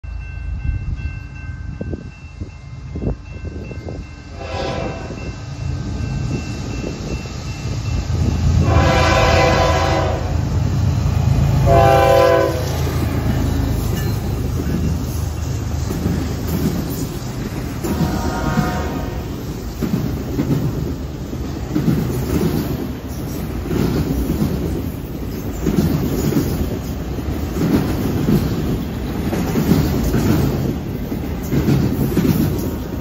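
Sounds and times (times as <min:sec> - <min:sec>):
train engine rumble: 0:00.0 - 0:33.0
locomotive horn blasts: 0:04.3 - 0:05.2, 0:08.6 - 0:10.4, 0:11.6 - 0:12.9, 0:17.8 - 0:19.3.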